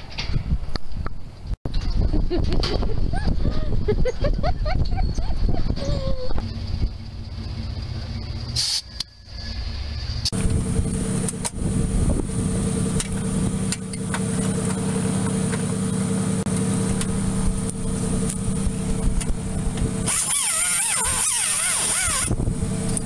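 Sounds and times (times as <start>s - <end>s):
low motor hum: 1.8s - 23.0s
handheld grinder running: 20.0s - 22.4s.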